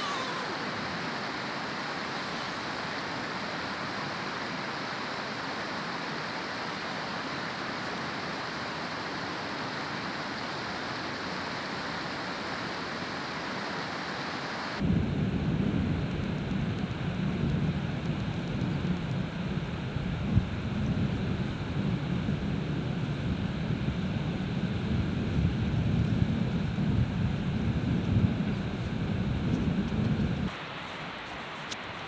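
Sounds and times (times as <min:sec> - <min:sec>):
open-air ambience hiss: 0:00.0 - 0:32.0
wind buffeting microphone: 0:14.8 - 0:30.6.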